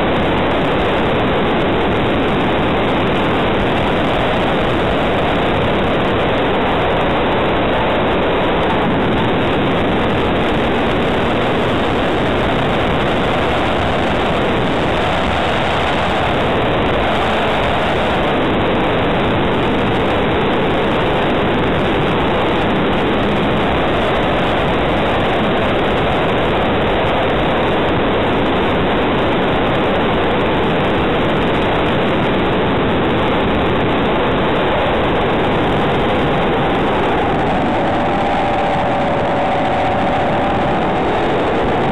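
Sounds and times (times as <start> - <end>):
aircraft engine running: 0.0 - 26.8, 31.4 - 41.9
airflow rushing over microphone: 0.0 - 41.9.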